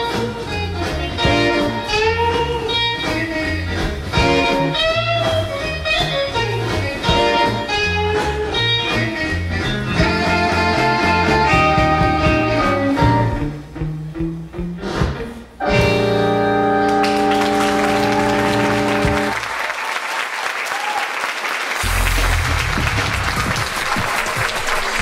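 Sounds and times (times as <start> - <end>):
audience applause: 16.8 - 25.0
deep low musical tone: 21.8 - 23.9.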